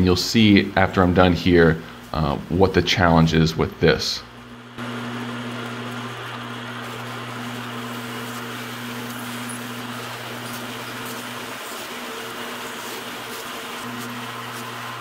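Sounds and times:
bandsaw humming: 4.3s - 15.0s
bandsaw cutting metal fins: 4.8s - 15.0s.

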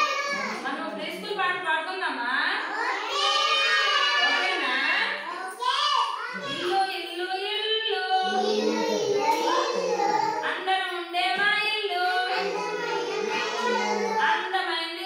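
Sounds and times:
children singing in chorus: 0.0s - 0.6s, 8.1s - 10.5s, 12.0s - 14.5s
woman singing: 10.5s - 12.4s.

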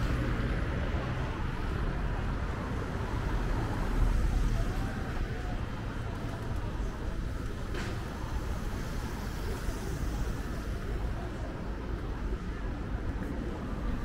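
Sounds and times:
faint voices of passers-by: 0.0s - 14.0s
street traffic: 0.0s - 14.0s.

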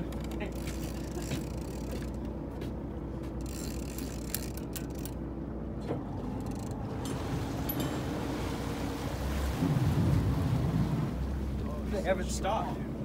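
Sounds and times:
boat engine rumble: 0.0s - 13.0s
fishing reel gears grinding: 3.4s - 5.2s.

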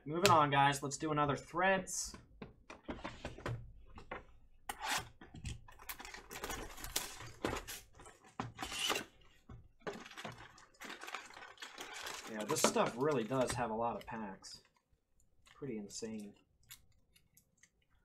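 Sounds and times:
card packs crinkling and rustling: 5.7s - 9.2s, 9.8s - 16.2s.

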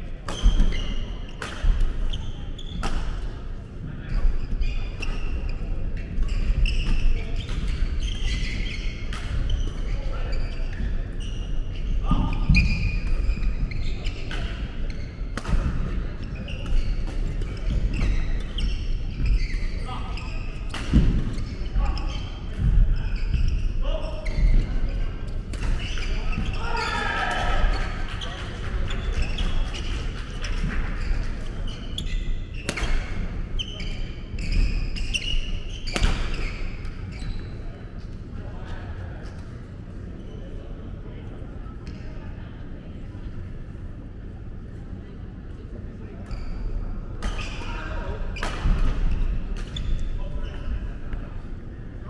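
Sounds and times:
sneaker squeaks on wooden floor: 0.3s - 1.4s, 4.1s - 27.0s, 28.9s - 37.7s, 46.3s - 48.0s
shoes squeaking on wooden floor: 17.5s - 24.9s.

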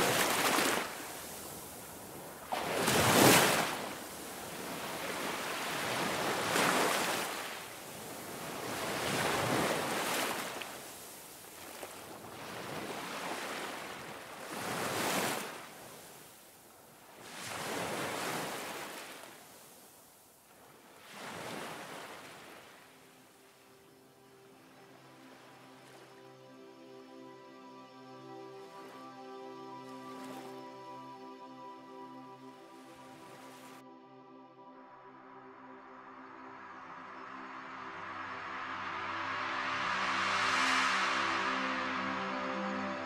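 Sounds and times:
ocean waves washing in: 0.0s - 26.8s, 35.5s - 43.0s.

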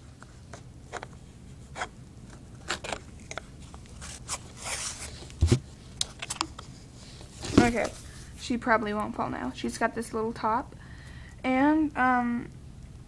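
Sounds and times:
plastic doll handling noises: 0.0s - 8.3s.

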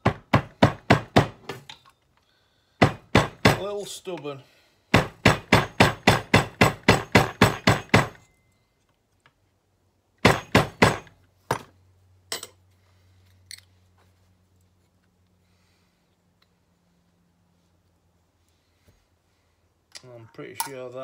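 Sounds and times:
hammer striking metal: 4.9s - 8.4s, 10.2s - 11.6s.

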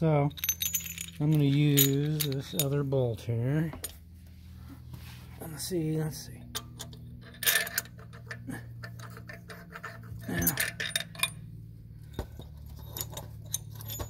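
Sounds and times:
metal bolts and tools clinking: 0.3s - 3.0s, 6.5s - 14.0s.

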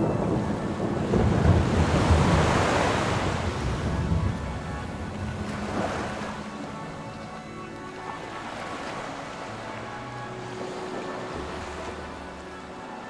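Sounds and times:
wind rumble on microphone: 0.0s - 7.1s
ocean wave surging and washing back: 0.0s - 13.0s.

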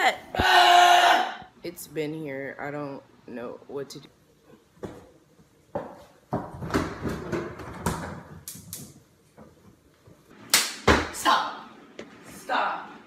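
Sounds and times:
clattering and thumps: 5.8s - 8.5s.

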